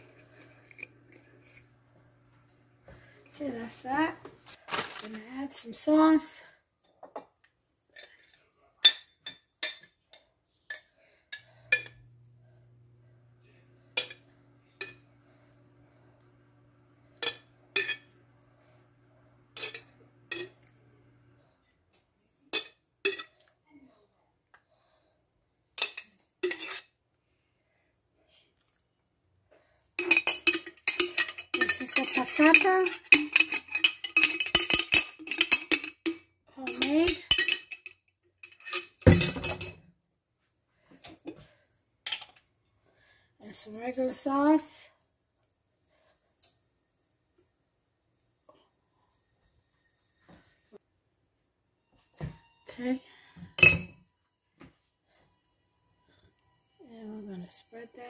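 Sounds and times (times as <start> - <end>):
metal spoon clinking on container: 30.0 - 39.8
utensil scraping baking dish: 30.4 - 35.8.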